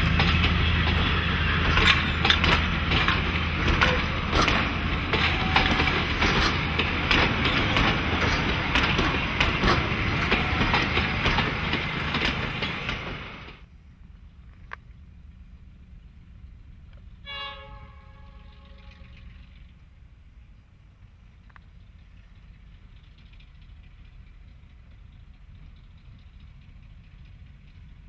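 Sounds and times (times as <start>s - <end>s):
clacks over rail joints: 0.0s - 13.7s, 21.4s - 28.0s
train wheels rumbling on rails: 0.0s - 28.0s.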